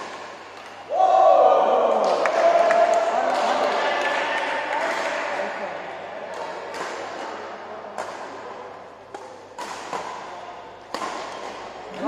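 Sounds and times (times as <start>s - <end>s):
rackets hitting shuttlecock: 0.0s - 0.8s, 6.3s - 12.0s
sports hall background noise: 0.0s - 12.0s.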